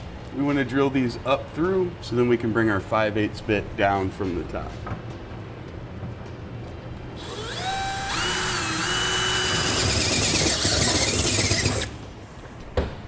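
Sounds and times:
cordless drill boring through steel: 7.2 - 12.0.

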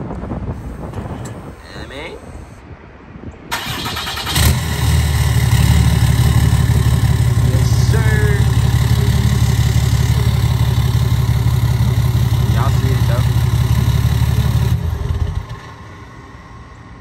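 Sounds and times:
starter motor cranking: 3.5 - 15.9
diesel engine idling loudly: 3.6 - 16.6.

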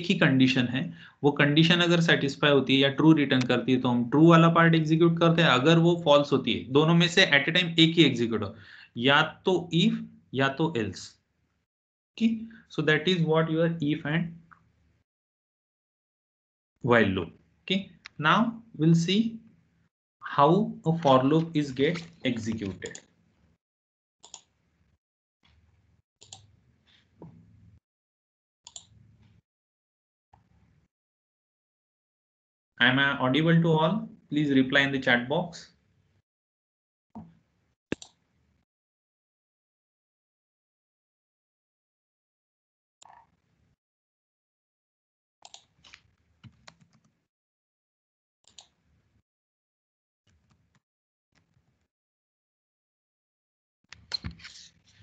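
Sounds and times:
mouse and keyboard clicks: 37.9 - 38.2, 53.9 - 54.7.

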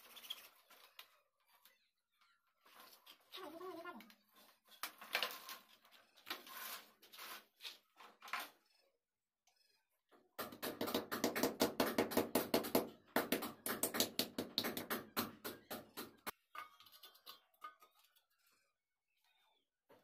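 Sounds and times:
hammer striking brick wall: 10.4 - 16.6.

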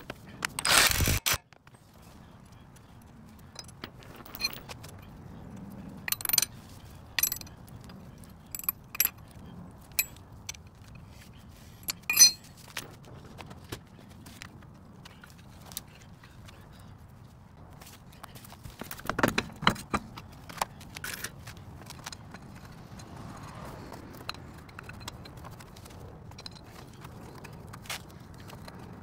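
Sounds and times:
metal tools clinking on hub: 2.8 - 12.9, 18.1 - 29.0.

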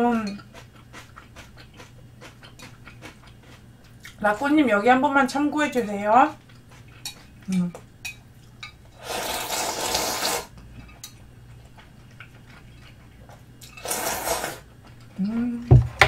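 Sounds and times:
person slurping noodles: 9.0 - 10.5, 13.8 - 14.6.

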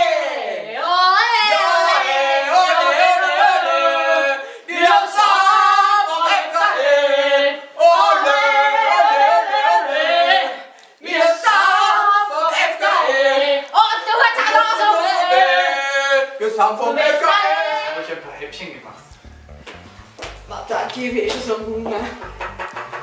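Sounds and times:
women singing together: 0.0 - 18.2, 20.8 - 22.3.

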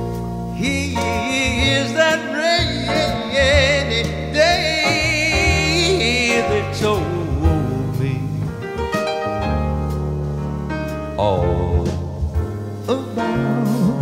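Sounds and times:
instrumental accompaniment: 0.0 - 14.0
man singing a ballad: 0.5 - 8.8, 11.2 - 14.0.

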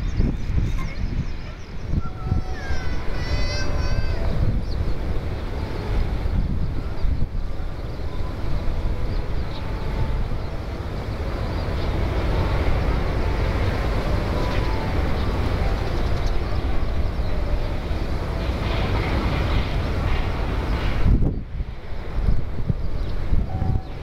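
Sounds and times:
distant jet aircraft rumble: 0.0 - 24.0
wind on microphone: 0.0 - 24.0.

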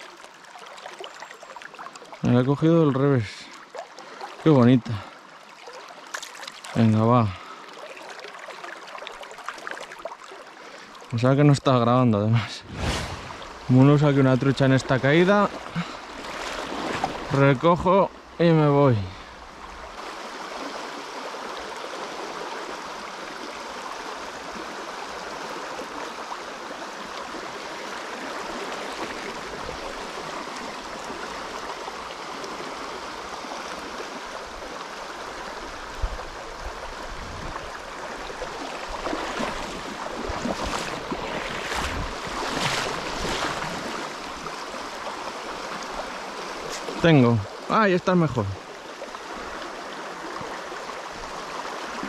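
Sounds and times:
river rushing over gravel: 12.5 - 19.1, 37.2 - 48.6.

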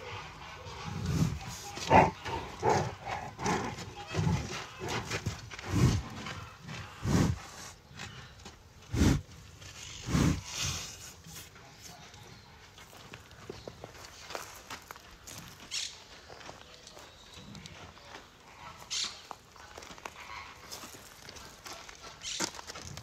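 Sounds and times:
rhinoceros breathing: 0.0 - 11.5.

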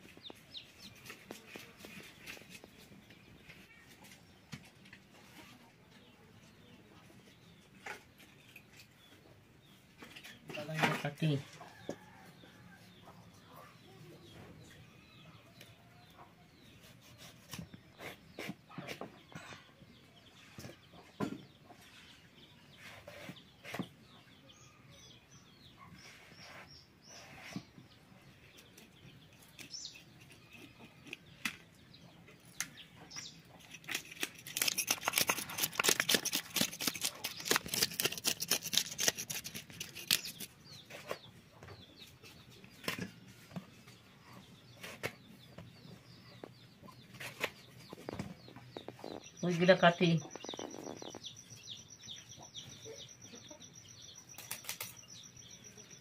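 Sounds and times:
knife scraping fish scales: 33.6 - 41.1
blade slicing vegetables: 33.7 - 40.5.

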